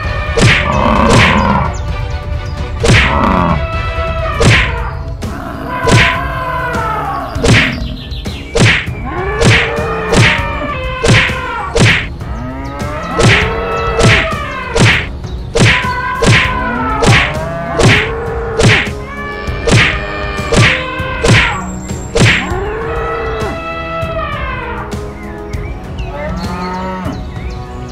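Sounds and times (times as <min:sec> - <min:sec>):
cartoon whacks and thuds: 0:00.4 - 0:01.4, 0:02.8 - 0:03.3, 0:04.4 - 0:04.8, 0:05.9 - 0:06.2, 0:07.4 - 0:07.8, 0:08.5 - 0:10.4, 0:11.0 - 0:12.1, 0:13.2 - 0:19.0, 0:19.6 - 0:21.6, 0:22.2 - 0:22.5.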